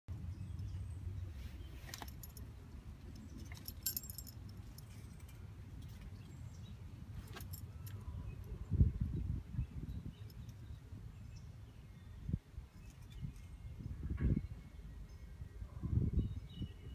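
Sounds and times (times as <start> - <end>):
metal dog tags jingling: 1.9 - 6.0.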